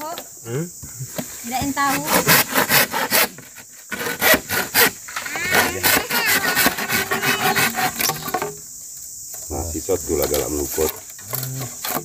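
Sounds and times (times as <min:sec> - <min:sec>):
hand saw cutting bamboo: 0:01.8 - 0:08.5.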